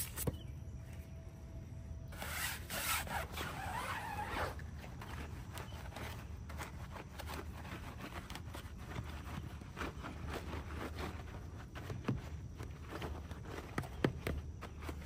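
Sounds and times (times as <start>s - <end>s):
steady low hum: 0.0s - 15.0s
brush scrubbing wet wheel: 5.0s - 13.8s.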